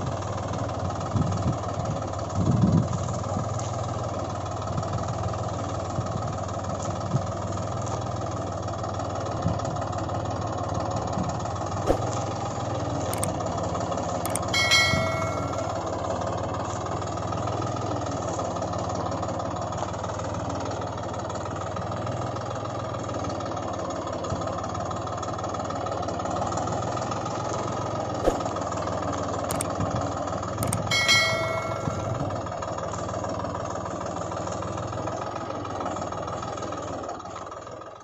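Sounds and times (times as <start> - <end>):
tractor engine running: 0.0 - 38.0
sharp clicks: 13.1 - 13.4, 14.3 - 15.7, 29.5 - 29.8, 30.6 - 30.9
short ringing ding: 14.3 - 16.0, 30.6 - 32.4.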